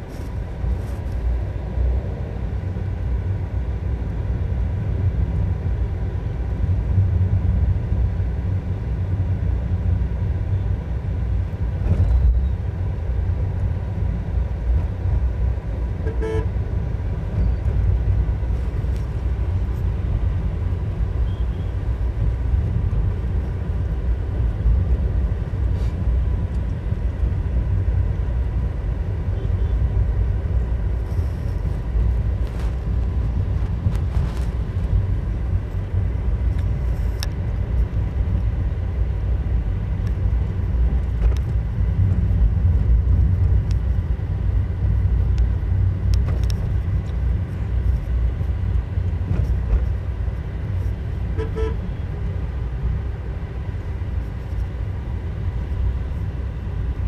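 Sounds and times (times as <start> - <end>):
vehicle engine and road noise: 0.0 - 57.0
short horn toot: 51.4 - 51.9.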